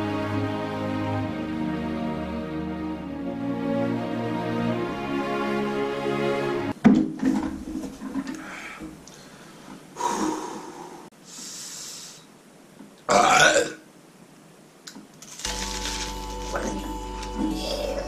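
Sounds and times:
man blowing hard breaths: 8.3 - 12.3
man burping: 13.1 - 13.8, 17.4 - 18.0.

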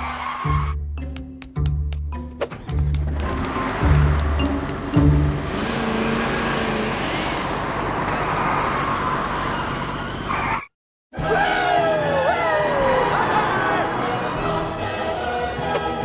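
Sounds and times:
car engine accelerating: 2.6 - 10.4.

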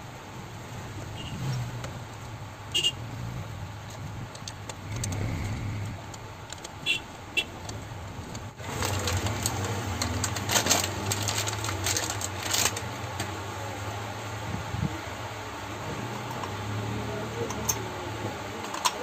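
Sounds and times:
plastic wrapper crinkling and tearing: 8.6 - 13.3.

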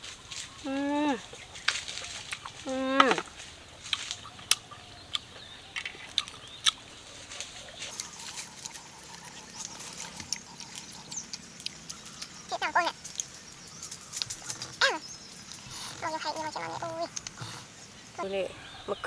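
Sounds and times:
fruit shell peeling crackles: 1.4 - 17.5
chewing clicks and smacks: 3.8 - 6.9, 7.8 - 15.7, 17.1 - 17.5.

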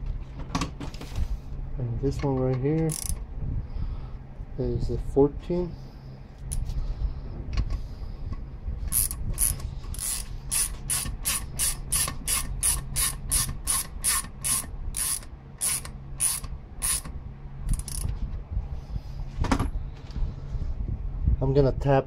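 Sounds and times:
hand ratchet clicking: 2.8 - 3.2, 8.9 - 17.1, 17.7 - 18.1.

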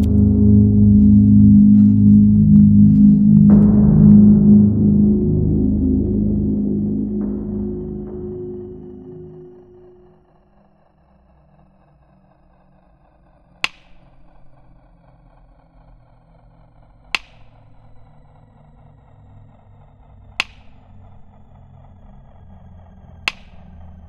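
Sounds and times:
sharp percussive hit ringing: 0.0 - 10.1, 13.7 - 14.3, 17.2 - 18.2, 20.4 - 21.0, 23.3 - 23.8
faint sustained high tones: 0.0 - 10.4
low rumble drone: 0.0 - 24.0.

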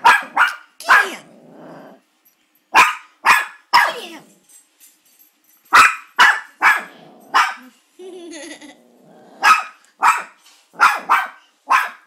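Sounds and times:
small dog barking: 0.0 - 1.3, 2.7 - 4.2, 5.7 - 7.7, 9.4 - 12.0.

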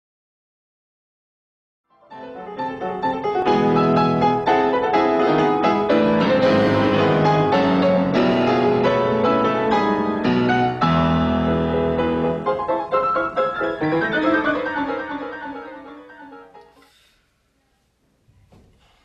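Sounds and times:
fast piano music: 2.0 - 16.6.

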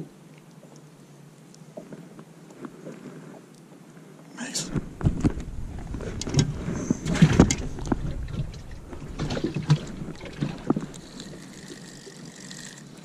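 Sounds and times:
knocks and thuds of gear in boat: 4.7 - 10.8.

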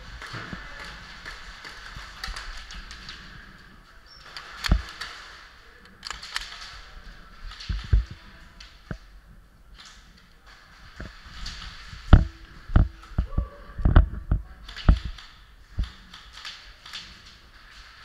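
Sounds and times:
camera knocking and rattling: 4.6 - 5.0, 7.5 - 8.2, 11.0 - 16.3.

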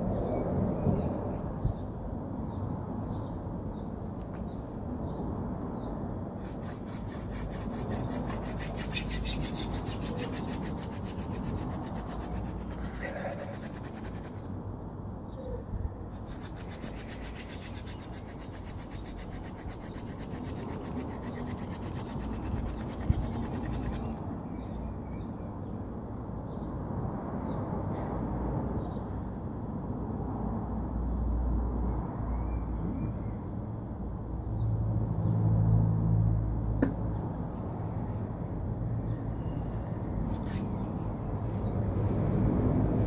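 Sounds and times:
wooden spindle grinding on wood: 6.4 - 14.4, 16.1 - 24.7.

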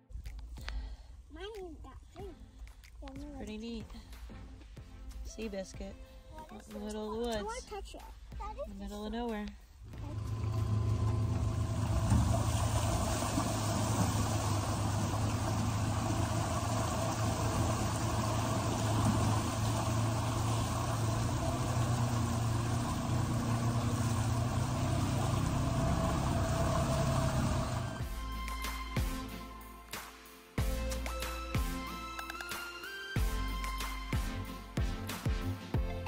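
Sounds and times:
utility vehicle engine running: 8.9 - 28.2
tyre splashing through mud: 9.8 - 27.9.

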